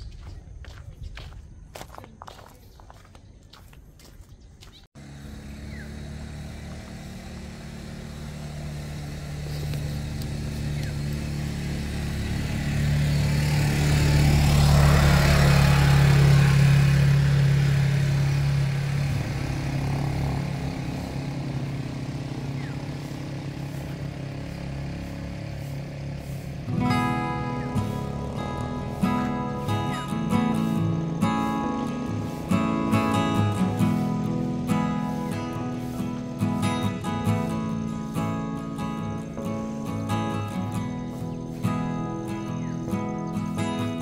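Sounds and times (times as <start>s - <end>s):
quad bike engine passing by: 4.8s - 44.0s.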